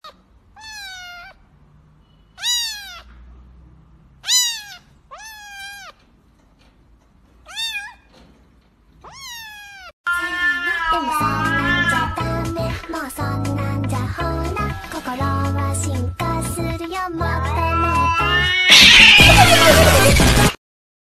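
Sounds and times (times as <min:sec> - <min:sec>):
kitten meowing high-pitched: 0:00.6 - 0:01.4, 0:02.4 - 0:03.1, 0:04.2 - 0:06.0, 0:07.5 - 0:08.0, 0:09.0 - 0:12.2, 0:17.5 - 0:19.8.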